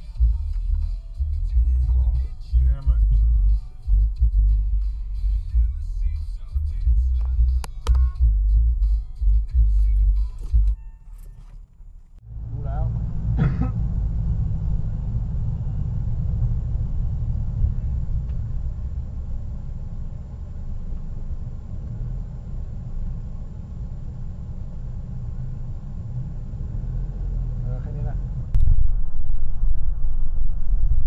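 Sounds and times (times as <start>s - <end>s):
car engine rumble: 0.0s - 31.0s
road noise: 0.0s - 31.0s.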